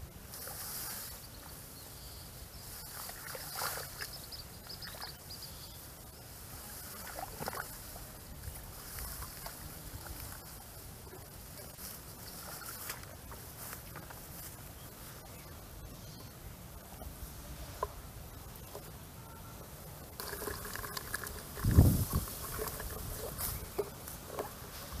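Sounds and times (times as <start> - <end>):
grass and weeds rustling: 0.0 - 19.1, 20.0 - 25.0
low outdoor noise: 0.0 - 25.0.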